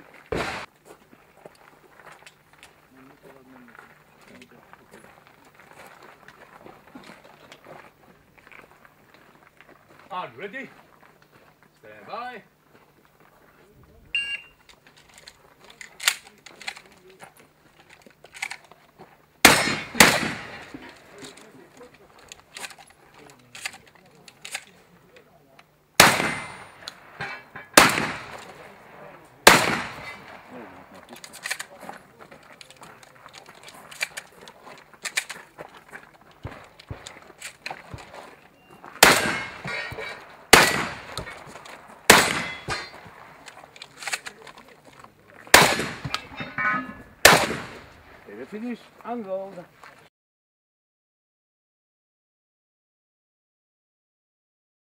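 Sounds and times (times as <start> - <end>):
shotgun shots: 0.3 - 0.7, 19.4 - 21.4, 26.0 - 31.7, 39.0 - 43.4, 45.5 - 48.2
shot timer beep: 14.2 - 14.6.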